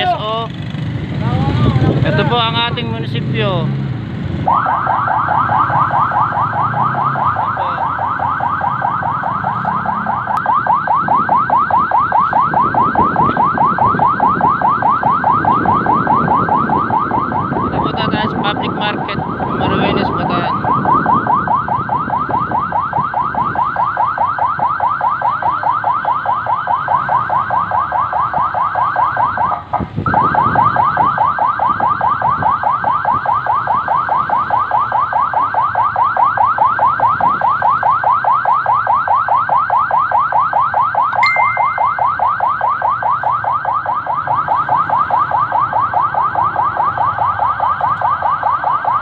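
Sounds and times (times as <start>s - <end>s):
siren yelping: 4.4s - 49.0s
short high siren chirps: 41.0s - 43.4s.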